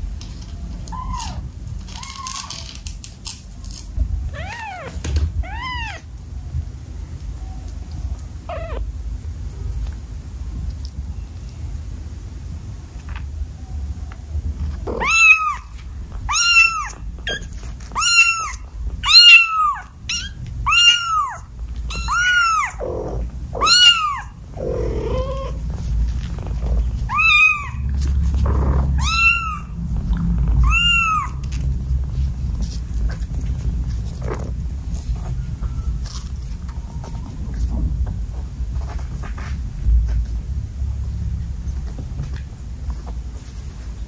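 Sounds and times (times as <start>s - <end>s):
low steady rumble: 0.0s - 44.0s
kitten meowing: 0.9s - 2.6s, 4.3s - 6.1s, 8.5s - 8.9s, 14.9s - 25.6s, 27.1s - 27.9s, 28.6s - 29.8s, 30.6s - 31.4s.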